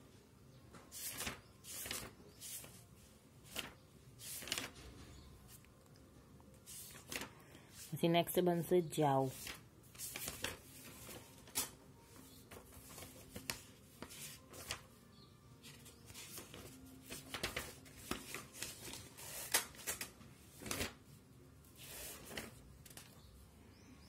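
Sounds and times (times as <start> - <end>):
paper and phone handling: 0.9 - 5.6, 6.6 - 8.0, 9.2 - 15.0, 15.6 - 21.1, 21.8 - 23.2.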